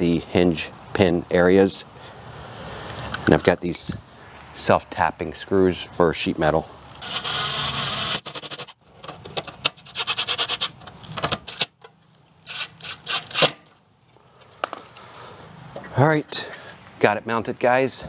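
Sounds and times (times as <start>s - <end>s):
cordless drill driving screws: 7.0s - 8.8s.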